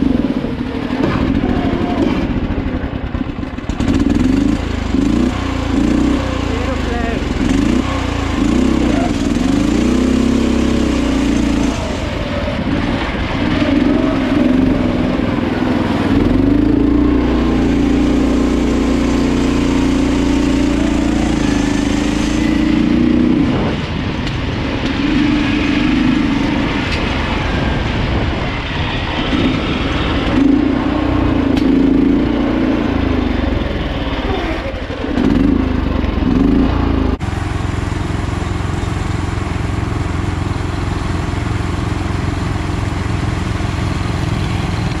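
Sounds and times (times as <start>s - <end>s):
small engine running hard: 0.0s - 45.0s.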